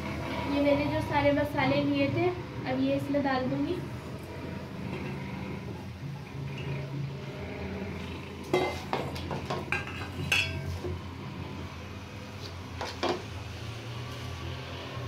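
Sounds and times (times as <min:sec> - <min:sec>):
spoon scraping metal pan: 0:08.4 - 0:10.9.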